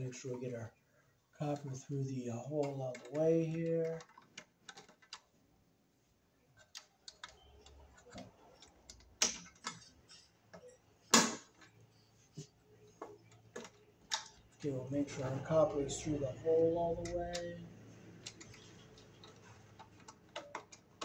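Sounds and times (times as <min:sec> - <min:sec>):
screwdriver and wire clicking on metal: 0:02.6 - 0:05.2, 0:16.6 - 0:17.6, 0:18.2 - 0:21.0.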